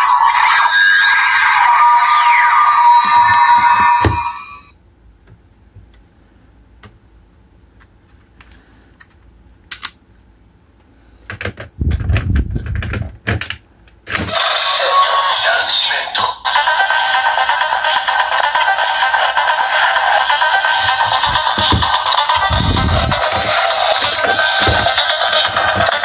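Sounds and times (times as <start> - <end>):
toy electronic sound: 0.0 - 4.7, 14.3 - 26.0
plastic toy clicking and clacking: 23.1 - 26.0.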